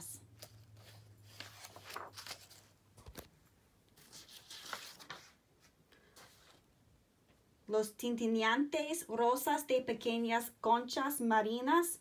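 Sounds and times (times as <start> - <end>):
paper page rustling: 0.3 - 3.3, 3.9 - 6.7.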